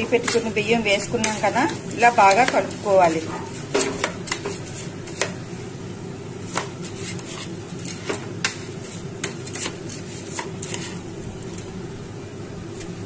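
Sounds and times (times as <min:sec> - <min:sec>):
spoon clinking and scraping pot: 0:00.0 - 0:05.3
steady low hum: 0:00.0 - 0:13.0.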